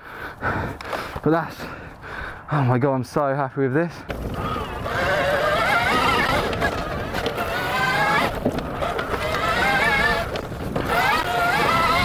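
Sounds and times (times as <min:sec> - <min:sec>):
tyre and ground noise: 0:02.9 - 0:12.0
electric motor whine: 0:04.1 - 0:12.0.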